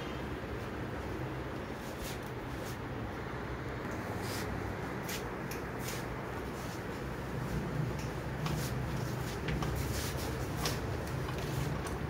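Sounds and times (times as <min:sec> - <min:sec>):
steady low hum: 0:00.0 - 0:12.0
wiring rustling: 0:04.2 - 0:12.0.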